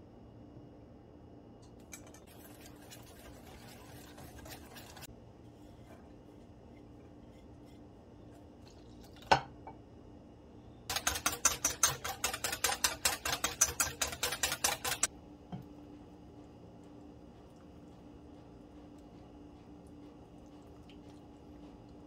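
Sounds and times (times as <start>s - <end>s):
wire whisk beating in a steel bowl: 10.9s - 15.1s.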